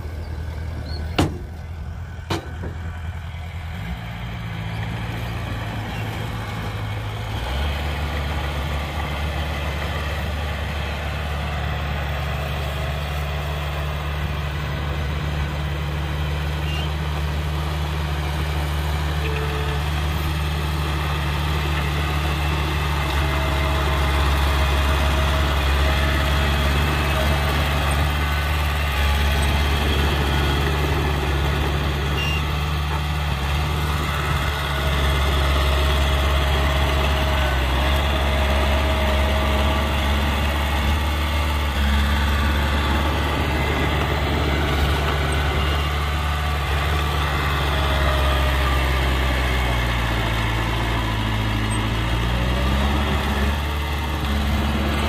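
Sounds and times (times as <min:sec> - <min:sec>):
heavy machine diesel engine running: 0:00.0 - 0:55.0.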